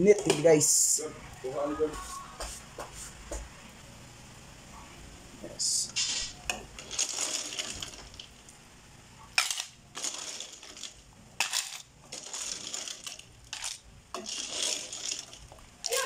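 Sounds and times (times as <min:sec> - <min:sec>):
ladle scooping from metal pot: 0:09.4 - 0:15.6
shellfish clattering into a bowl: 0:09.4 - 0:16.0.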